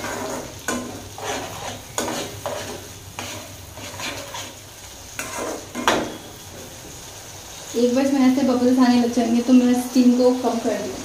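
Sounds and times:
spatula scraping a pan: 0.0s - 6.7s.

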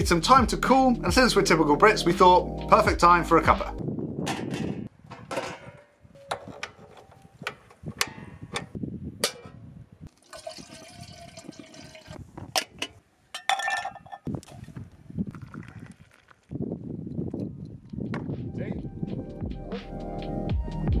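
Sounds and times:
camping gear clicks and knocks: 4.3s - 9.6s
mugs clinking: 9.2s - 14.3s
water pouring into kettle: 10.1s - 12.2s, 15.3s - 16.5s.

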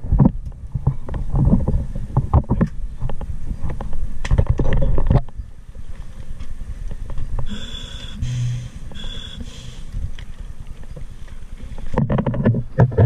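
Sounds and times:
short hissing spurts: 7.4s - 10.1s
boat engine rumbling: 7.4s - 13.0s.

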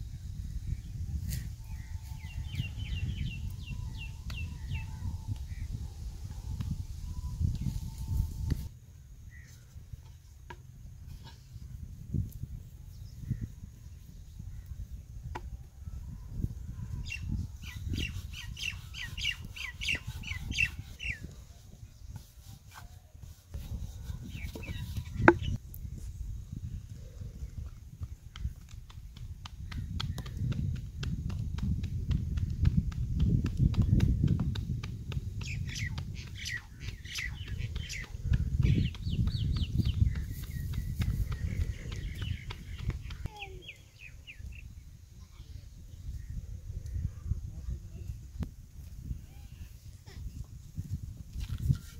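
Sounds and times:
birds chirping: 1.3s - 5.8s, 16.9s - 22.4s, 23.3s - 25.6s, 35.4s - 47.2s.

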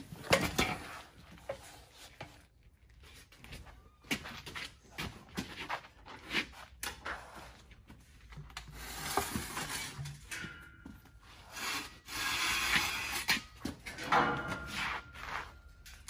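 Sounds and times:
rubber tire scraping steel: 8.8s - 10.6s, 11.2s - 15.8s.

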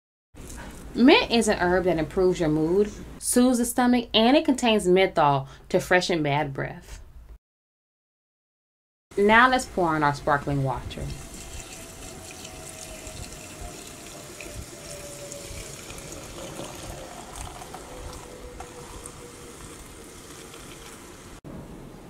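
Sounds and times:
sparkling water pouring into glass: 11.1s - 21.4s.

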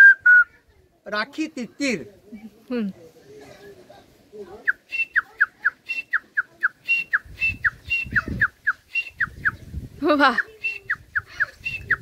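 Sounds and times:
man whistling bird call: 0.0s - 0.5s, 4.8s - 9.6s, 10.6s - 12.0s.

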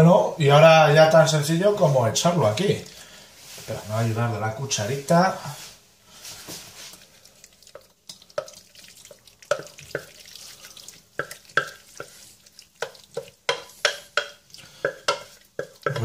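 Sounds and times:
pasta plopping into dish: 7.0s - 16.0s
spoon scraping metal pot: 11.2s - 16.0s.

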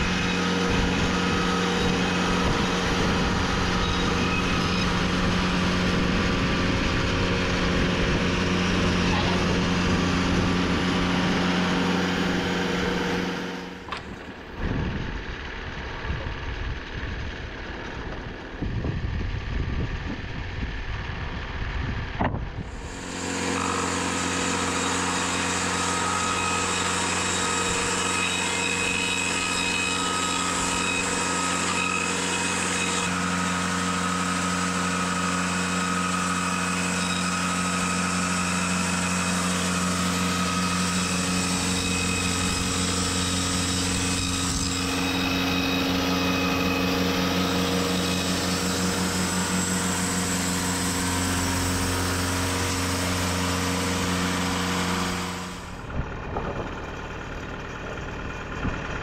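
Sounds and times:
band saw cutting log: 0.0s - 18.8s, 22.3s - 58.8s
sawmill engine running: 0.0s - 59.0s
sharp knocks: 13.8s - 14.8s.

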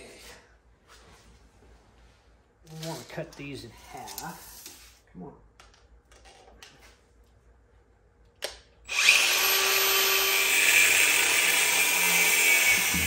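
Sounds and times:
angle grinder cutting metal pipe: 8.9s - 13.0s.

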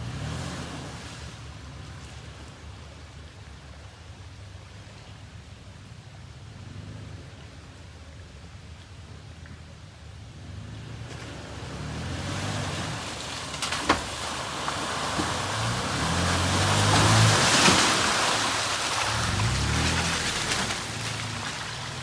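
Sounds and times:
engine revving: 0.0s - 1.1s, 10.5s - 13.8s, 15.0s - 22.0s
tyres splashing water: 10.5s - 22.0s.

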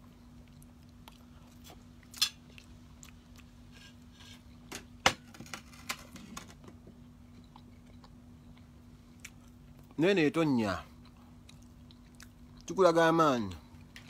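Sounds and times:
man chewing food: 0.0s - 4.7s, 6.8s - 10.0s, 10.9s - 12.8s, 13.6s - 14.0s.

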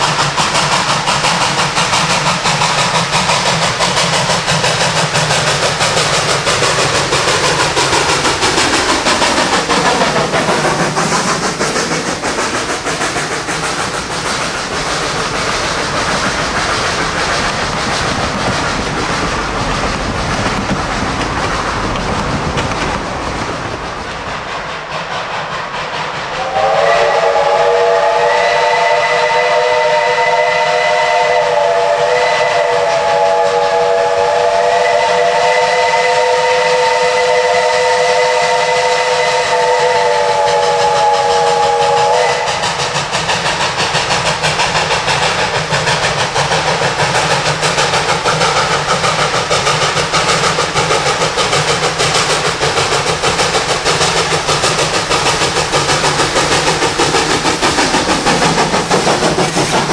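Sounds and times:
steam locomotive exhaust chuffing: 0.0s - 59.9s
steam locomotive chime whistle: 26.4s - 42.6s.

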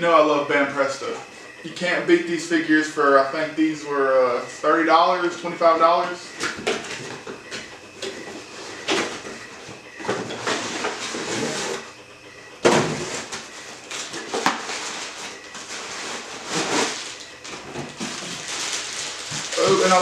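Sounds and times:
cardboard box rustling and scraping: 12.8s - 20.0s
plastic bag crinkling: 13.8s - 20.0s.

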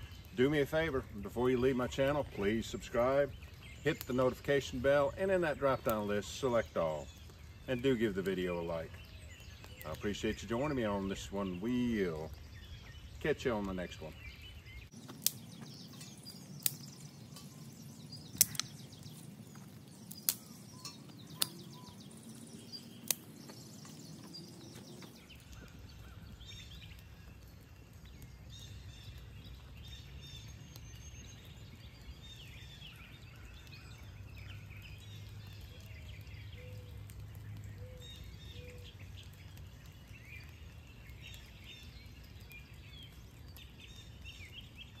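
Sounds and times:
birds chirping faintly: 0.0s - 45.0s
fire crackling and popping: 0.0s - 45.0s.

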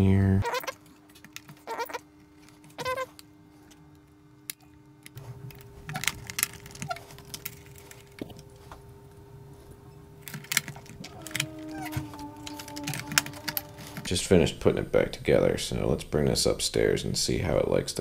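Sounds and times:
short squeaky sounds: 0.4s - 0.9s, 1.6s - 2.0s, 2.7s - 3.2s, 11.0s - 14.2s
clicks and knocks of plastic parts: 4.5s - 8.4s, 10.3s - 14.2s.

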